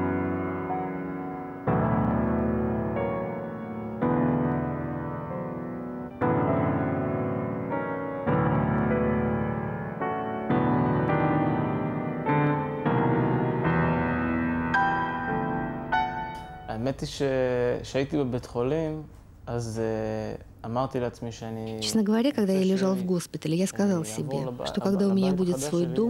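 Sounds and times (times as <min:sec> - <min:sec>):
slow piano chords: 0:00.0 - 0:18.2.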